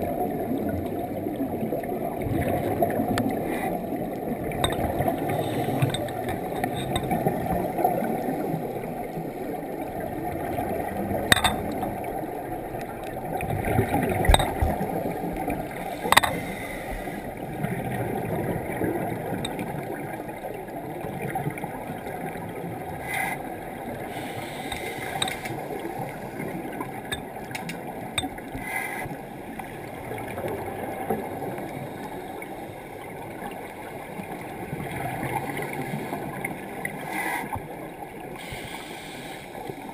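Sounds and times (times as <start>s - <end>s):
underwater regulator bubbles rumbling: 0.0s - 20.1s
sharp underwater clicks: 11.2s - 12.0s, 14.0s - 15.3s, 15.9s - 16.8s, 24.2s - 25.7s, 27.0s - 28.5s.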